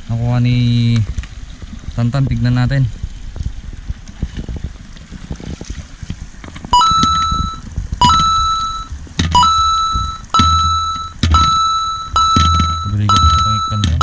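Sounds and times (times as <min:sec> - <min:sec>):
low hum: 0:00.0 - 0:14.0
ringing electronic sound effect: 0:06.8 - 0:14.0.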